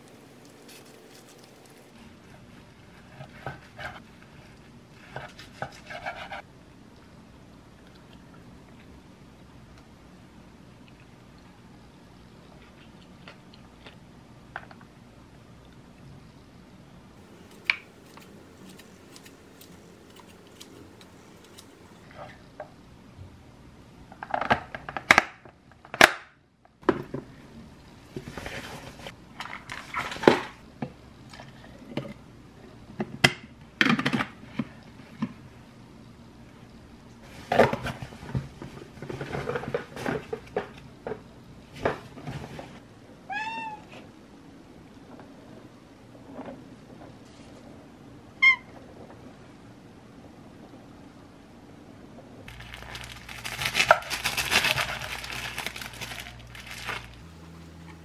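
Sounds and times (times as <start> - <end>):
cat meowing: 43.3 - 43.9
cloth bag rustling: 52.5 - 57.2.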